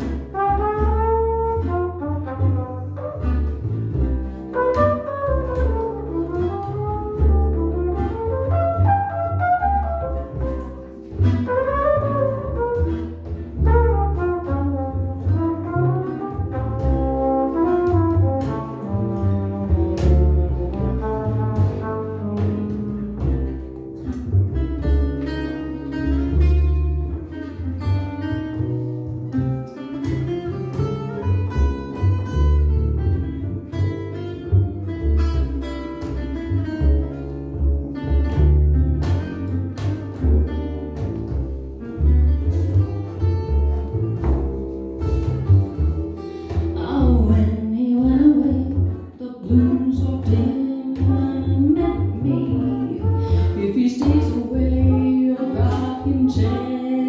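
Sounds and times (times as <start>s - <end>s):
double bass: 0.0s - 57.0s
guitar chords: 0.0s - 57.0s
trumpet melody: 0.3s - 3.5s, 4.5s - 23.5s.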